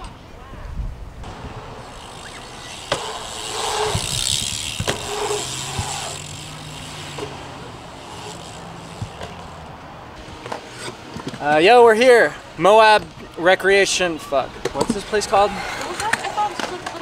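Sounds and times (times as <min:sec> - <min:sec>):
bike tyres rolling on concrete: 0:01.2 - 0:17.0
sharp clacks from bike: 0:01.9 - 0:07.4.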